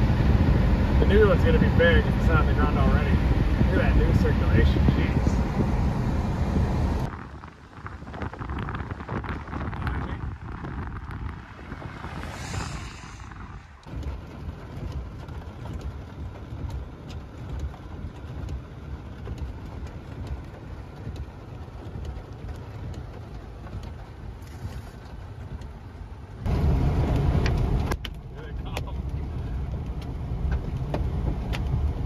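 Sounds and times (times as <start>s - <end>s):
rush of noise: 0.0s - 16.1s
low rumble of car: 0.0s - 32.0s
wind buffeting microphone: 0.0s - 32.0s
rain and hail hitting car: 7.0s - 12.4s, 13.8s - 32.0s.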